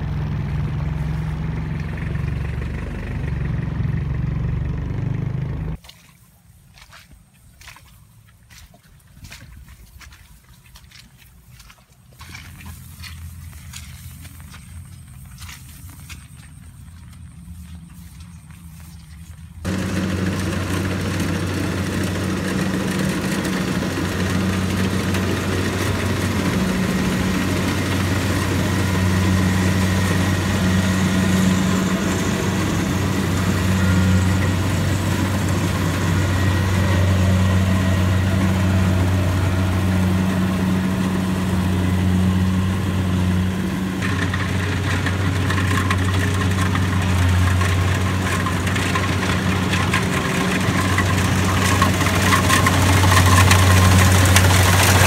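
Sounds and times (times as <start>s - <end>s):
combine harvester engine droning: 0.0s - 5.9s, 11.5s - 55.0s.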